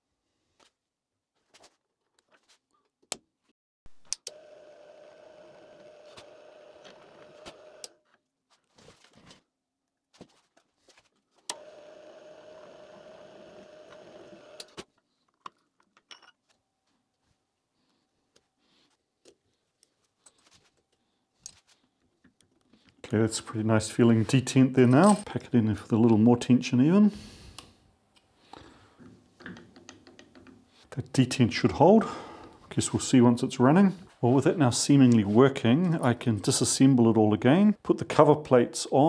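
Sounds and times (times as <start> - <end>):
drill press humming: 4.2 - 8.0, 11.5 - 14.8
clicks and knocks of handling parts: 14.6 - 16.6, 29.0 - 30.7.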